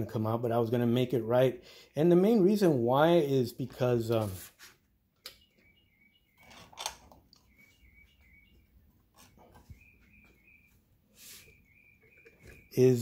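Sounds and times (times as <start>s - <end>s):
faint bird chirping: 5.2s - 13.0s.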